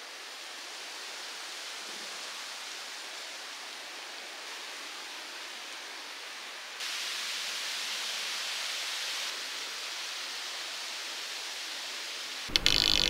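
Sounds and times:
rushing hiss of outdoor ambience: 0.0s - 13.0s.

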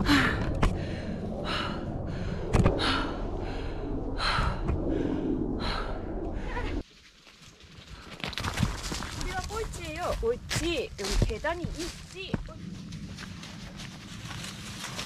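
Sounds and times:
low steady rumble: 0.0s - 6.8s, 9.8s - 15.0s
person breathing hard: 0.0s - 6.8s.

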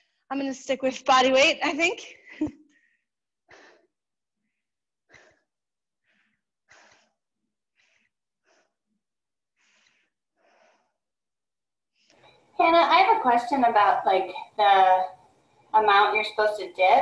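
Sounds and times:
person breathing heavily: 2.7s - 11.0s.

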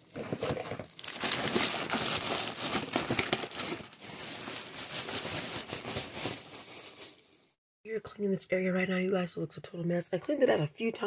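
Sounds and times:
garbage bag crinkling and rustling: 0.0s - 7.6s.

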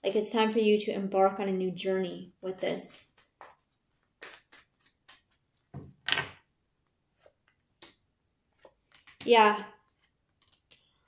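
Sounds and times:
cards riffling: 3.1s - 5.4s, 8.6s - 9.3s, 9.9s - 11.0s
cards snapping and tapping: 8.6s - 9.4s, 10.3s - 10.9s.

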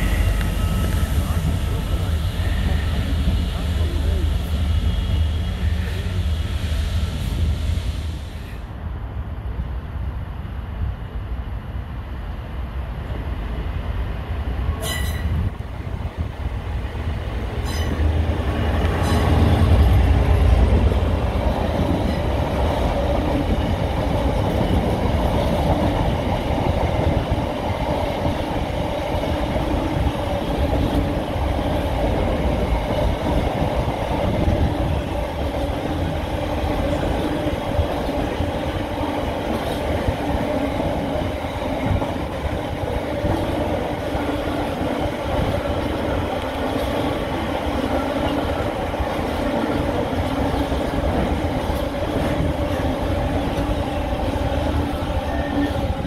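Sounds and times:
ringing wheel-on-rail tone: 0.0s - 1.8s, 17.6s - 18.1s
diesel locomotive passing: 0.0s - 56.0s.

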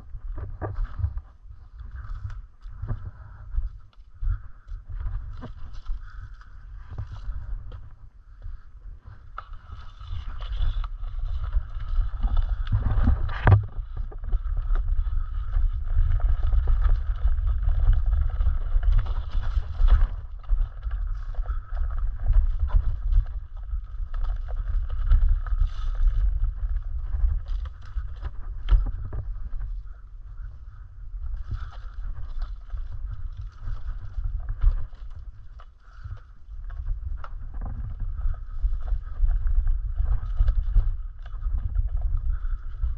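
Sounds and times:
wind buffeting microphone: 0.0s - 42.9s
twigs and leaves crackling: 0.2s - 42.9s
board rolling over dirt trail: 9.2s - 42.9s.

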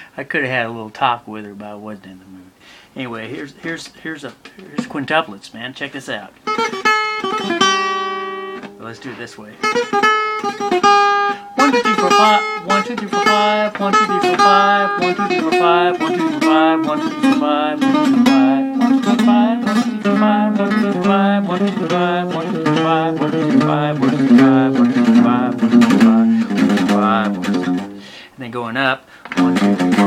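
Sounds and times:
acoustic guitar fast picked notes: 6.4s - 28.2s, 29.3s - 30.0s.

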